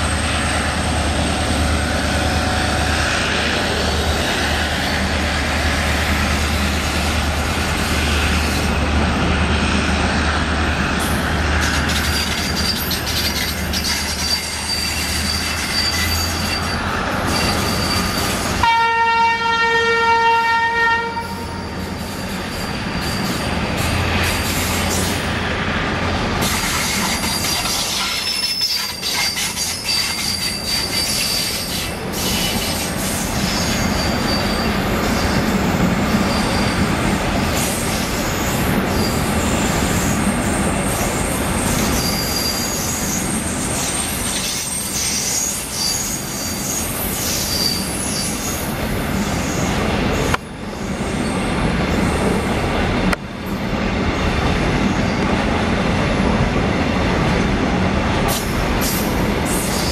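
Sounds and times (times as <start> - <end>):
train wheels rumbling and clattering: 0.0 - 19.3, 21.1 - 59.9
high-pitched wheel squeals: 11.7 - 18.7, 21.2 - 23.6, 27.0 - 37.1, 38.4 - 49.8, 59.5 - 59.9.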